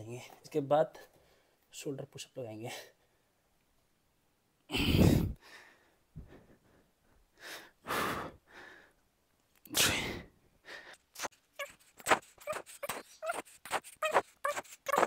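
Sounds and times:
man breathing heavily: 4.7 - 9.0, 9.9 - 11.4.

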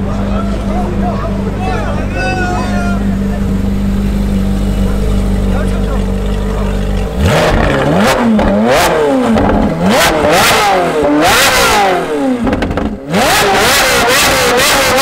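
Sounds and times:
car engine revving: 0.0 - 15.0
exhaust cracks: 0.0 - 15.0.

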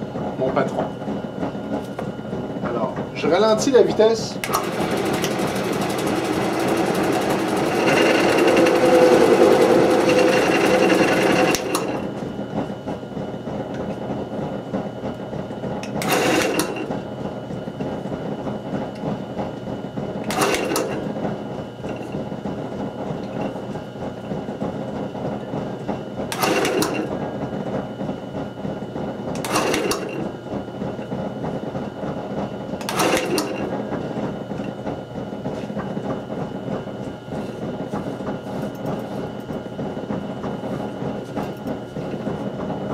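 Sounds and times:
wood lathe running: 3.2 - 14.2, 15.7 - 19.2, 20.0 - 28.3, 29.0 - 38.5.

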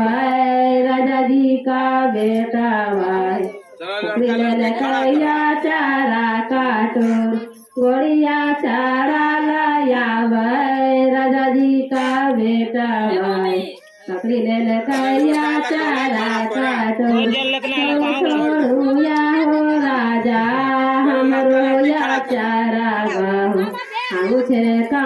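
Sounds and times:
high voice singing: 13.0 - 25.0.

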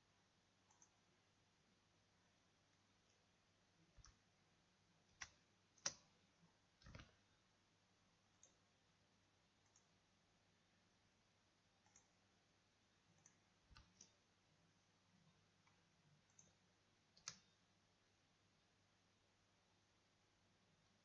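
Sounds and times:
faint computer mouse clicks: 0.7 - 1.0, 11.8 - 12.2, 13.2 - 14.2, 15.6 - 16.6, 17.2 - 17.6.

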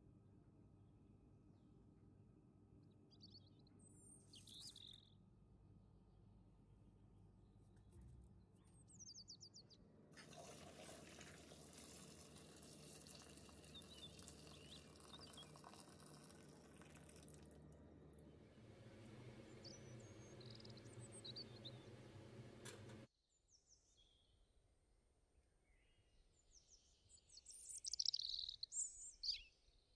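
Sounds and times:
birds chirping faintly: 2.7 - 5.2, 11.1 - 17.5, 18.2 - 24.3
water running from a tap: 10.2 - 17.6.

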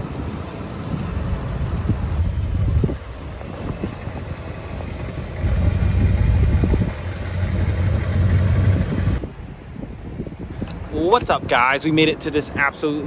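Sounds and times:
pickup truck engine rumbling: 1.1 - 9.2.

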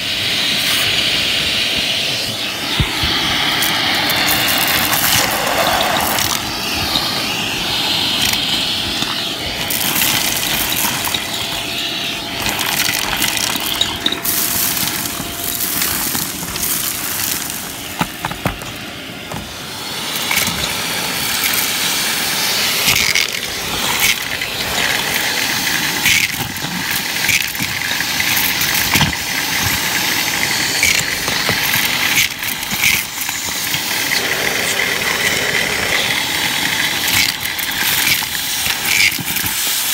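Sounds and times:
vacuum cleaner running: 0.0 - 39.9
debris rattling into vacuum: 2.9 - 39.9.

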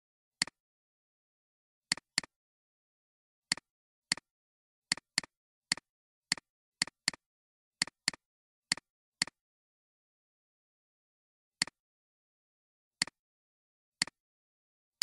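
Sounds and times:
computer mouse clicks: 7.8 - 9.4.

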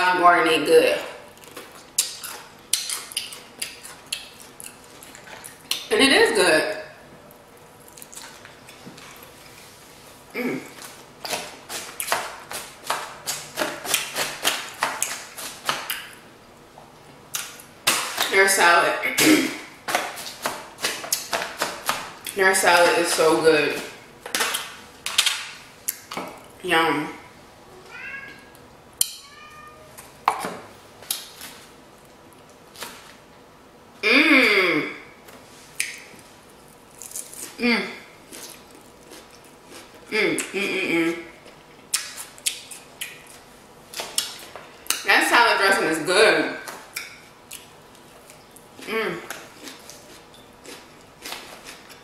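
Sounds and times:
person humming: 34.0 - 35.0, 37.6 - 38.0.

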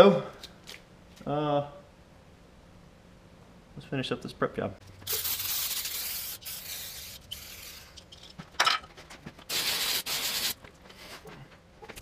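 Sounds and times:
aerosol spray hissing: 5.0 - 8.0, 9.5 - 10.6.

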